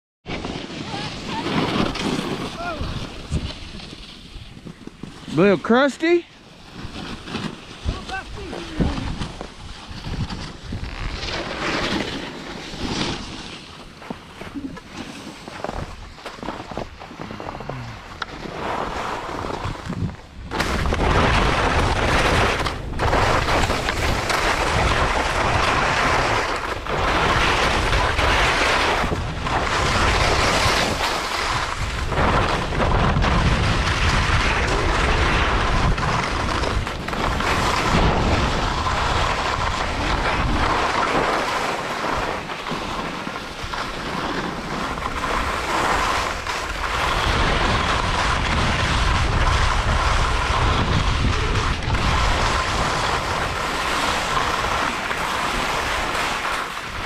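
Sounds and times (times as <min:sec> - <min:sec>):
sliding over snow: 0:00.3 - 0:57.0
wind rushing over microphone: 0:07.7 - 0:12.1, 0:18.4 - 0:57.0.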